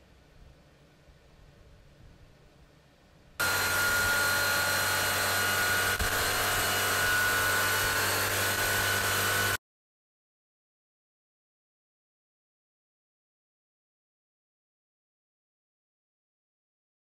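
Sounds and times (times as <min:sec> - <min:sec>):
engine running with whine: 0:03.4 - 0:09.6.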